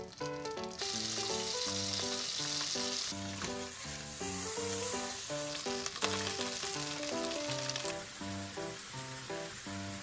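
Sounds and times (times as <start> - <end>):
background music: 0.0 - 10.0
butter sizzling in a frying pan: 0.0 - 10.0.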